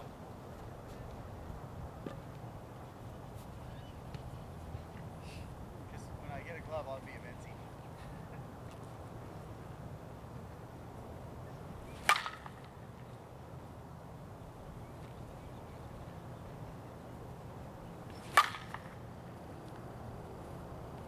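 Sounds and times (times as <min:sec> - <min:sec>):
bat cracking a ball: 0:11.9 - 0:12.8, 0:18.1 - 0:19.1.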